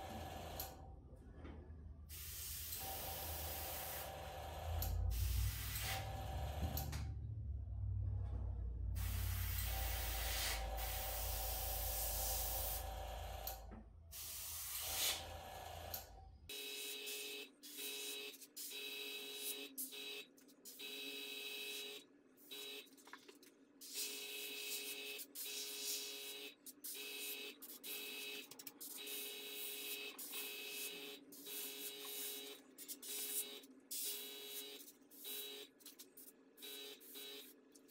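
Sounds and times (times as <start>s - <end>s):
low hum: 4.4s - 14.2s.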